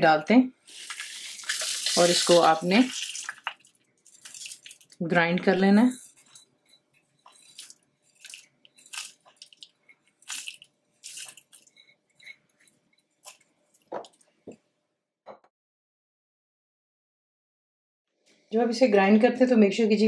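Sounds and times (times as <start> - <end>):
spices pattering into plastic jar: 0.7 - 5.0.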